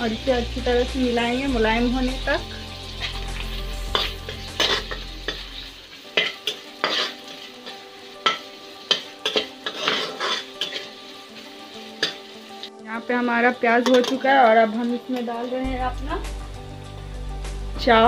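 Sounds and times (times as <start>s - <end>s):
onions sizzling in hot oil: 0.0s - 18.0s
spatula scraping a pan: 2.9s - 12.4s.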